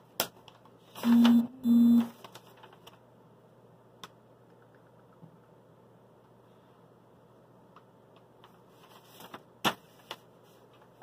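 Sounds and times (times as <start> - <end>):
paper being handled: 2.0 - 3.0, 8.4 - 11.0.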